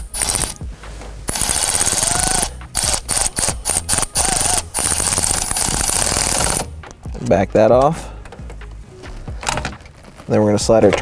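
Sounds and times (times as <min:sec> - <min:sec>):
electric ratchet motor whine: 0:00.0 - 0:00.6, 0:01.3 - 0:06.7.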